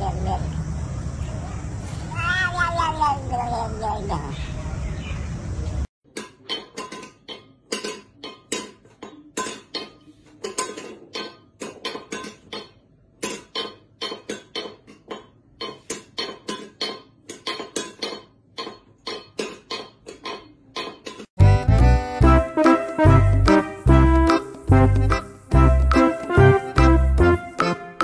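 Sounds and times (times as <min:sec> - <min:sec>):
metal bowl clanking on tiles: 0:06.1 - 0:21.3.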